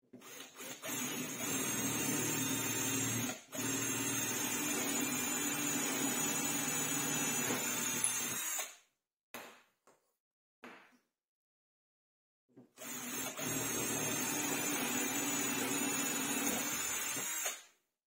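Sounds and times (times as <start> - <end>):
electric power tool motor running: 12.8 - 17.6.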